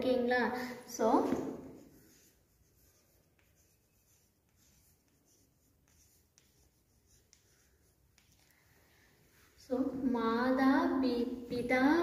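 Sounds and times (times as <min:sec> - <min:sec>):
chalk scratching on chalkboard: 0:01.2 - 0:08.5
chalk tapping on board: 0:01.3 - 0:08.5.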